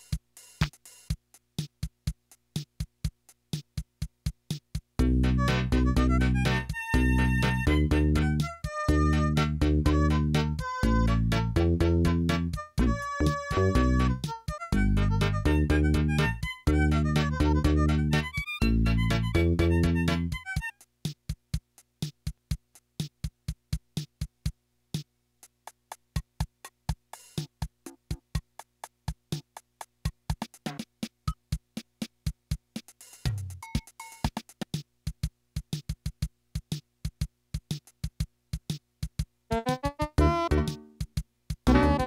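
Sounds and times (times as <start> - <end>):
electronic drum pattern: 0.0 - 24.5, 25.7 - 42.0
keyboard chords: 5.0 - 20.7, 39.5 - 41.0, 41.7 - 42.0.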